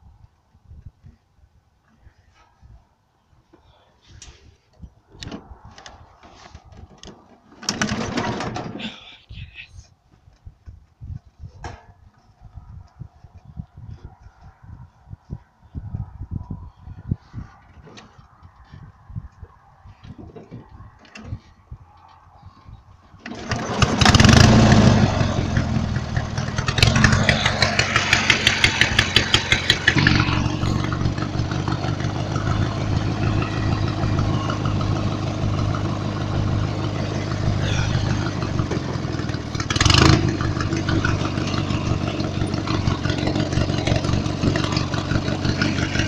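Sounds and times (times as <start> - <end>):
lawn mower engine running: 7.6 - 8.8, 23.2 - 46.0.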